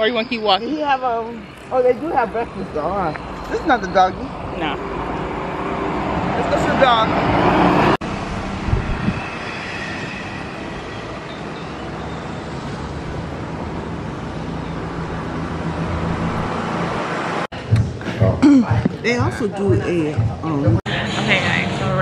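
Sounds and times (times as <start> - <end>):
street rumble: 0.0 - 22.0.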